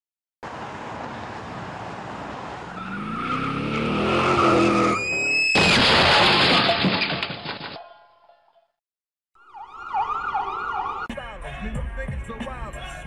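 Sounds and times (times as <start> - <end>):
road noise: 0.4 - 5.8
car engine revving: 2.8 - 5.0
loud crash: 5.4 - 7.8.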